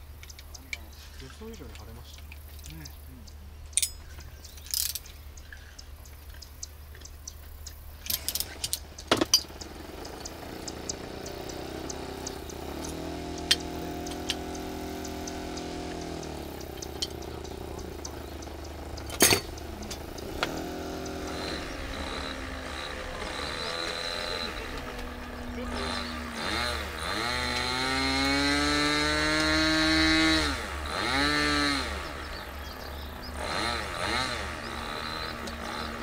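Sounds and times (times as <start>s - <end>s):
metal parts clicking on bench: 3.7s - 5.2s, 6.2s - 9.6s, 19.0s - 20.5s
steady pitched hum: 5.2s - 36.0s.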